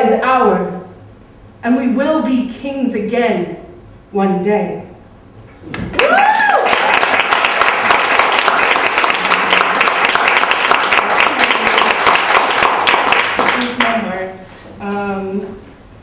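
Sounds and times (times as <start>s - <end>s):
person whooping: 5.9s - 7.0s
audience clapping: 5.9s - 14.0s.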